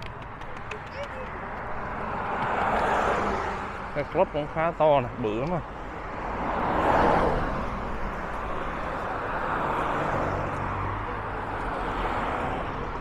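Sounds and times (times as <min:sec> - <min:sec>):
steady traffic noise: 0:00.0 - 0:13.0
car passing close: 0:01.4 - 0:04.4, 0:06.0 - 0:12.8.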